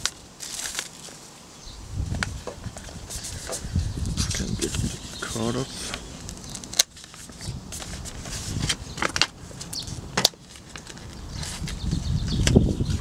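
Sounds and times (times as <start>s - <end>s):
plastic packaging crackling: 0.0s - 1.2s, 4.2s - 11.8s.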